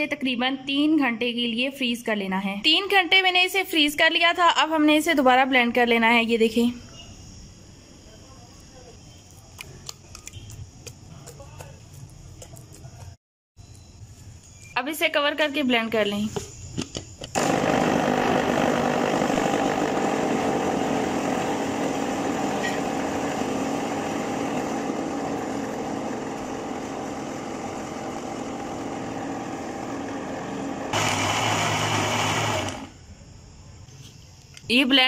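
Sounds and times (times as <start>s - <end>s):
electric blender running: 17.3s - 32.9s.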